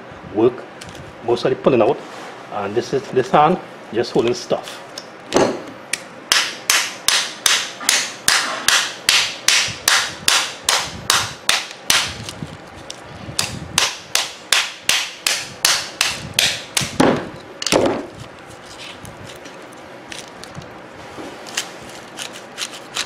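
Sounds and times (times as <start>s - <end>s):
hammer striking metal transformer: 6.3s - 12.2s.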